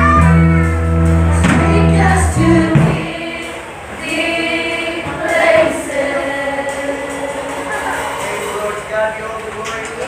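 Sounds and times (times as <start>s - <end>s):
band accompaniment: 0.0s - 10.0s
choir singing: 1.4s - 8.9s.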